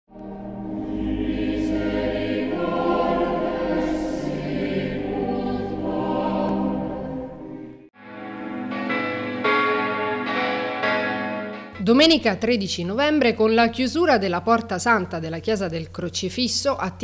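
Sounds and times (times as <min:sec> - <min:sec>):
choir singing sustained chords: 0:00.1 - 0:11.7
church bells ringing: 0:08.0 - 0:13.0.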